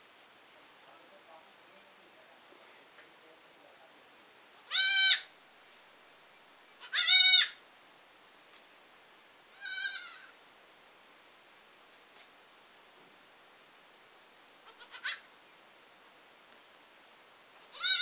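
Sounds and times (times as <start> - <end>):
goat kid bleating: 4.6 - 5.3, 6.8 - 7.6, 9.5 - 10.4, 14.6 - 15.3, 17.6 - 18.0.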